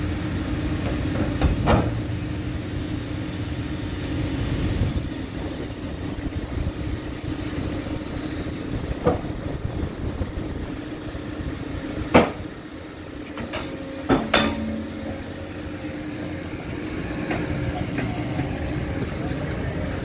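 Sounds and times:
excavator diesel engine running: 0.0 - 20.0
metal bucket clanging on steel piles: 13.3 - 15.5.

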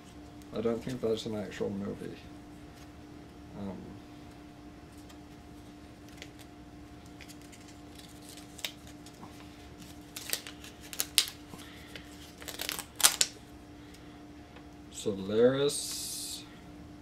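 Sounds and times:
faint steady hum: 0.0 - 17.0
paper crinkling and rustling: 6.0 - 13.3.

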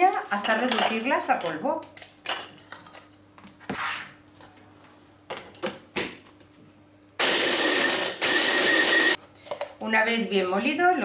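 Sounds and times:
blender motor whining: 7.2 - 9.2.

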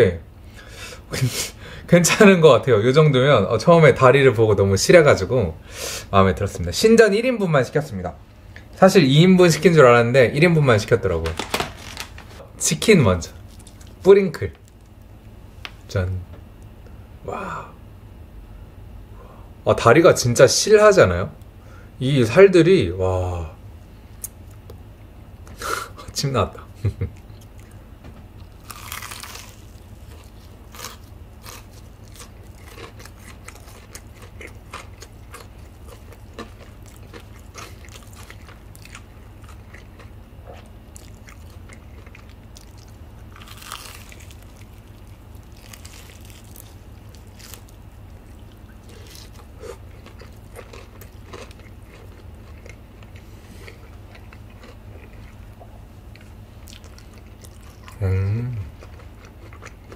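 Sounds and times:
steady low hum: 0.0 - 59.9
crunchy bites of fried chicken: 28.4 - 55.6
crunching clicks of chewing: 28.4 - 59.9.

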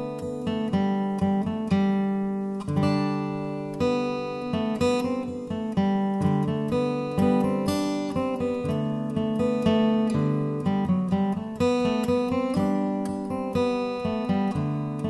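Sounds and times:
acoustic guitar music: 0.0 - 15.0.

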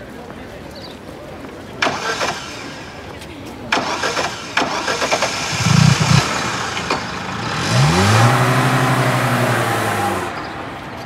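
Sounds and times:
car engine starting and running: 1.8 - 3.0, 3.7 - 10.8
sharp clicks: 1.8 - 7.5.

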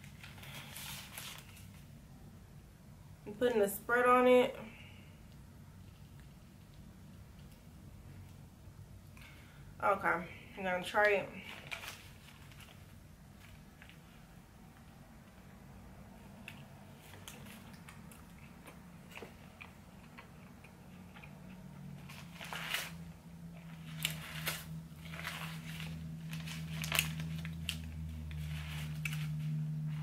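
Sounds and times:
paper wrapper crinkling: 0.0 - 1.9, 11.4 - 14.2, 22.0 - 30.0
low steady hum: 0.0 - 30.0.

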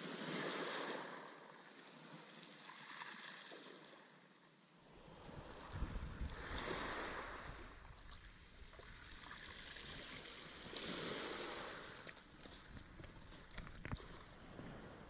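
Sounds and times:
wind rumble on microphone: 5.0 - 9.2.

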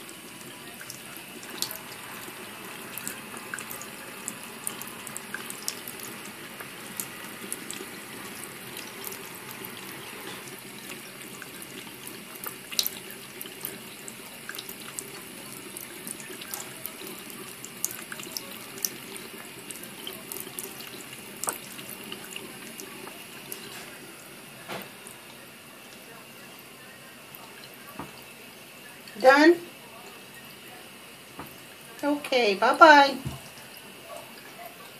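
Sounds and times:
cat lapping water: 0.0 - 24.0
tap water splashing into sink: 2.9 - 24.0, 24.6 - 25.2, 27.3 - 28.2, 31.3 - 32.1, 33.1 - 33.7.

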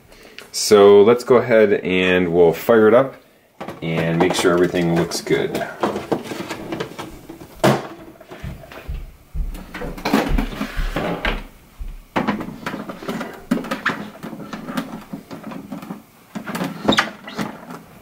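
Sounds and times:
monitor set down: 3.6 - 17.8
low handling bumps: 6.9 - 15.4.

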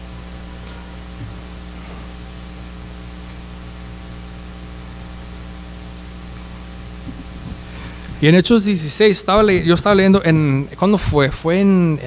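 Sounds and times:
electrical mains hum: 0.0 - 12.0
static hiss: 0.0 - 12.0.

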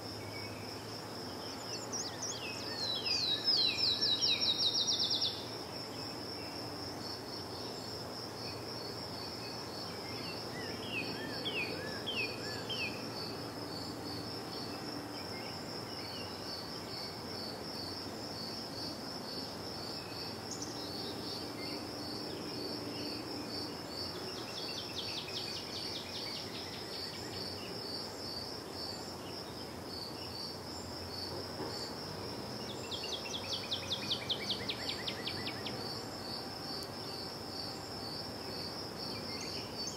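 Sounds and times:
cricket chirping: 0.0 - 39.9
songbirds calling: 0.2 - 6.2.

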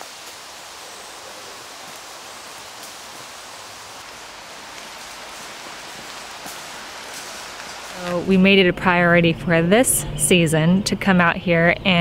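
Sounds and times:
footsteps on dry leaves: 1.3 - 8.4.

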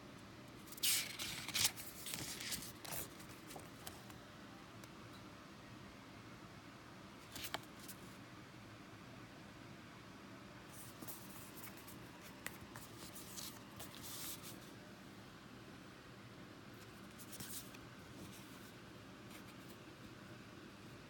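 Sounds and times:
paper rustling and scraping: 0.7 - 3.7.

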